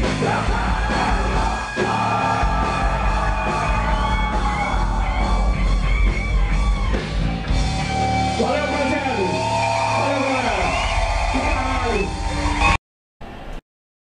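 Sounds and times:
person yelling singing: 0.0s - 5.8s
live rock band playing: 0.0s - 12.8s.

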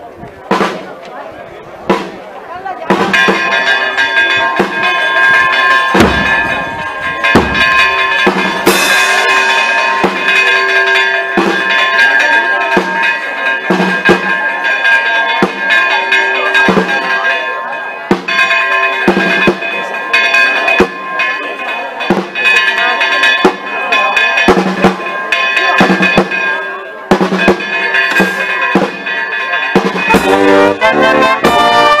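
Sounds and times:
church bells pealing: 2.7s - 32.0s
deep low thumps: 6.0s - 8.6s.

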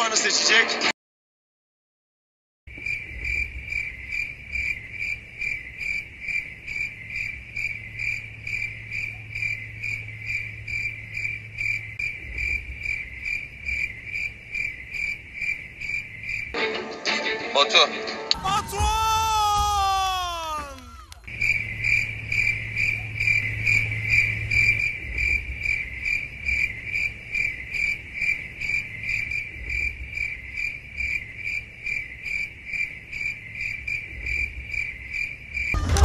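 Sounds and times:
crickets chirping: 2.7s - 16.6s, 18.4s - 36.0s.

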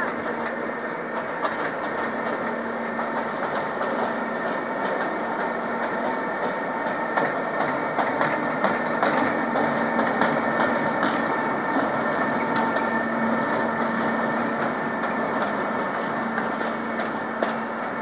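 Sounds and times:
train running on rails: 0.0s - 18.0s.

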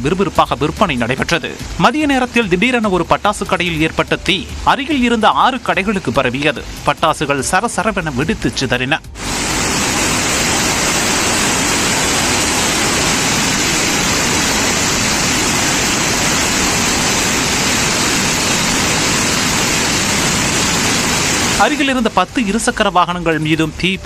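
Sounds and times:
firecrackers crackling: 9.2s - 22.5s.

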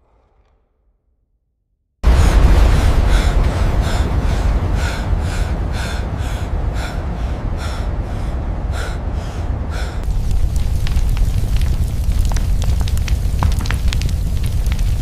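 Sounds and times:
furnace low rumble: 2.0s - 15.0s
man gasping breaths: 2.1s - 10.1s.

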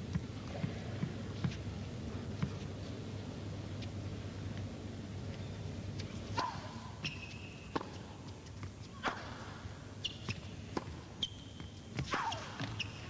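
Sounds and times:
tennis ball bouncing on court: 6.4s - 9.4s, 10.1s - 13.0s
shoe squeaks: 7.0s - 7.7s, 10.0s - 10.5s, 11.2s - 13.0s.

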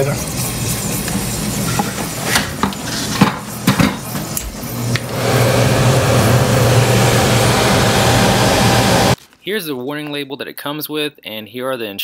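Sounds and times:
air handler hum and rush: 3.6s - 9.2s.

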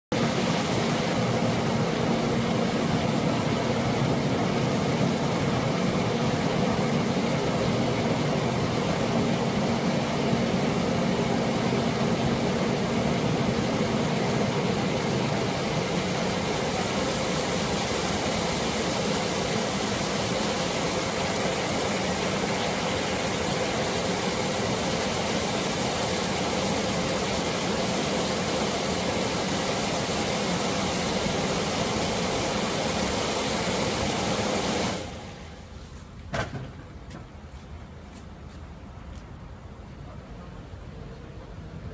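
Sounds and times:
air blower whirring: 0.1s - 35.8s
knock: 36.3s - 37.3s.

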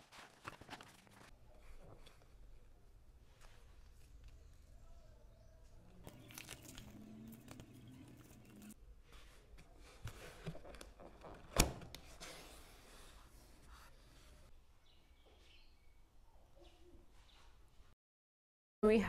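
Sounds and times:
paper rustling: 0.0s - 2.4s.

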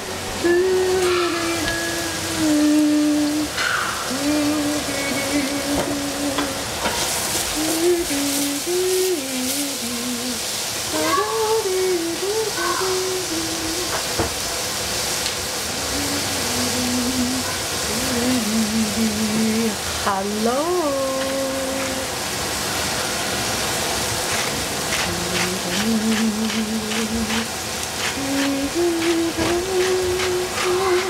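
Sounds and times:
vegetables sizzling in a saucepan: 0.0s - 31.0s
person humming: 0.4s - 3.5s, 4.1s - 6.7s, 7.6s - 14.0s, 15.8s - 22.1s, 25.0s - 31.0s.

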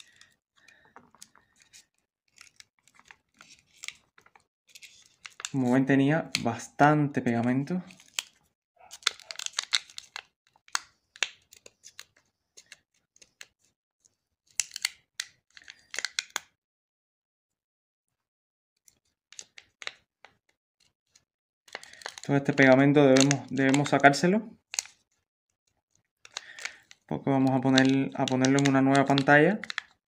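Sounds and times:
foil wrap crinkling: 0.0s - 5.8s, 7.9s - 12.8s, 21.7s - 25.0s, 26.3s - 30.0s
adhesive crackling and tearing: 0.7s - 5.6s, 7.9s - 12.0s, 14.6s - 15.0s, 27.6s - 30.0s.

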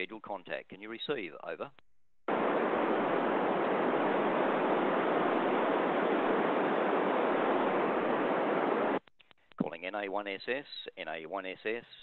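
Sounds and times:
radio white noise hiss: 2.3s - 9.0s.

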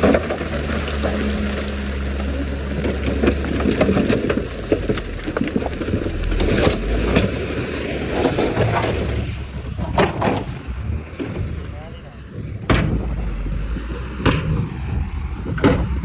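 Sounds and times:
stones clattering and sliding: 0.0s - 10.3s
diesel engines humming: 0.0s - 16.0s
sharp knocks: 12.6s - 13.2s, 15.4s - 16.0s.

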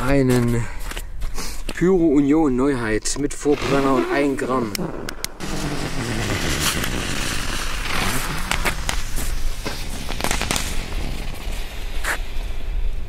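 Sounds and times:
sharp cracks: 3.6s - 12.4s
fuse hissing and crackling: 3.6s - 13.0s.

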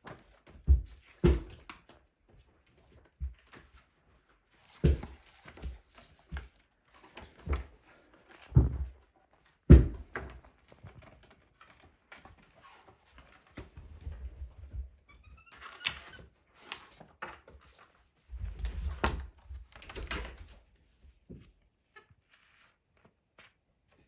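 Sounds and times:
knocks and thumps: 9.7s - 10.4s.

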